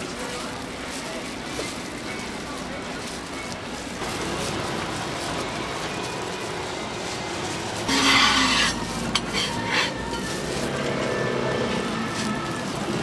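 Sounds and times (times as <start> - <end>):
crepe sizzling on griddle: 0.0 - 13.0
spatula scraping griddle: 7.3 - 13.0.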